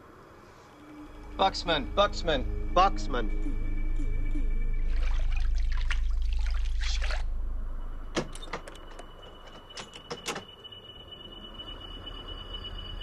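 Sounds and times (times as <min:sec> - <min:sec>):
steady low hum: 0:00.0 - 0:09.8
shower water splashing: 0:04.9 - 0:07.4.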